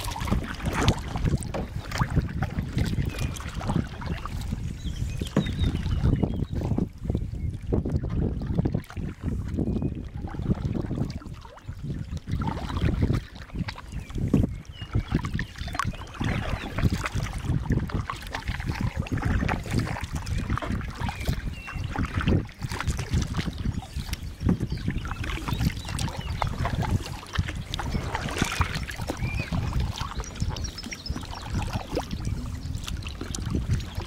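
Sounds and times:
kayak paddle splashing in water: 0.0s - 7.2s, 7.8s - 34.0s
wind buffeting microphone: 0.0s - 34.0s.

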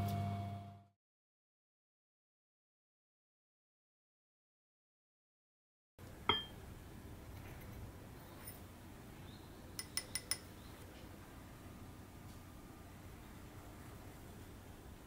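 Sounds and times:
glassy clink with ring: 6.3s - 6.6s.

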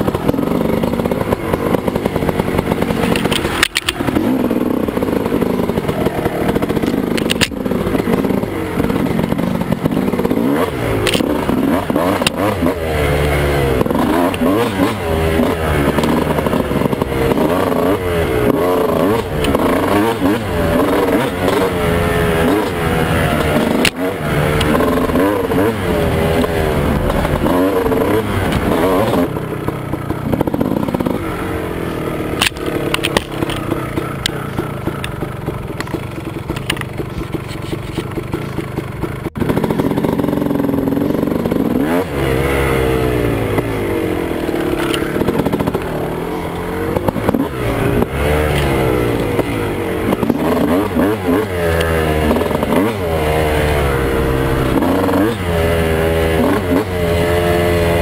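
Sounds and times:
sharp knocks and clatter: 0.0s - 4.4s, 32.4s - 40.2s
two-stroke motorcycle engine revving: 0.0s - 58.0s.

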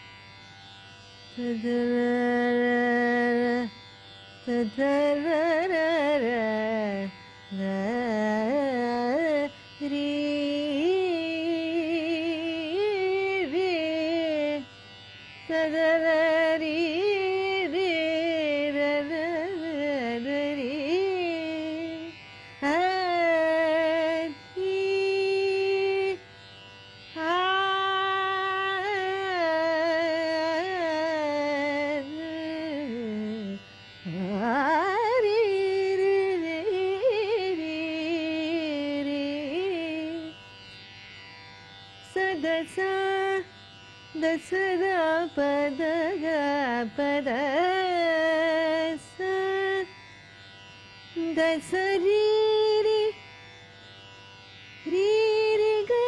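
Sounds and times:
woman singing wordless melody: 1.3s - 3.8s, 4.4s - 14.8s, 15.4s - 26.3s, 27.1s - 40.5s, 42.0s - 50.0s, 51.1s - 53.3s, 54.8s - 56.0s.

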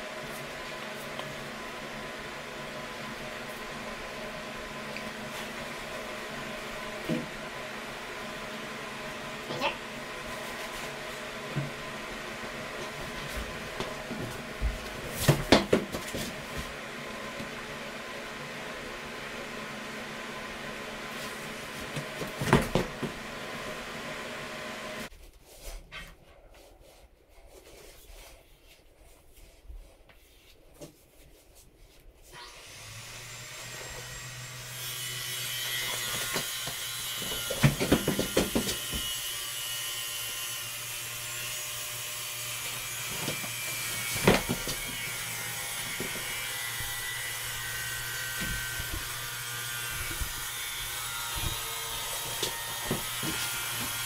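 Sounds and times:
electric tile saw whine: 22.7s - 25.1s, 32.4s - 54.0s.

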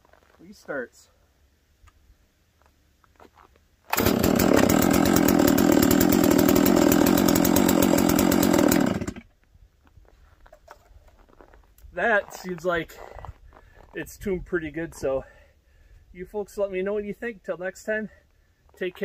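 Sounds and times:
chainsaw engine running: 3.9s - 9.2s.

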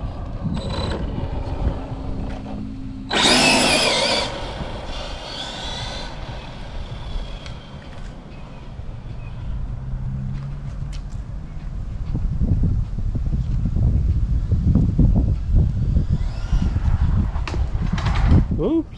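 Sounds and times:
electric motor whining: 0.2s - 9.5s, 15.9s - 17.5s.

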